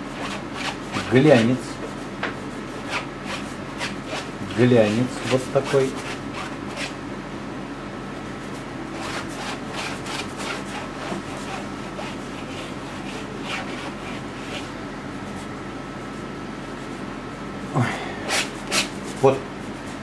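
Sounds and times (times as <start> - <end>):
faint steady hum: 0.0 - 20.0
paint scraping on canvas: 8.5 - 17.1.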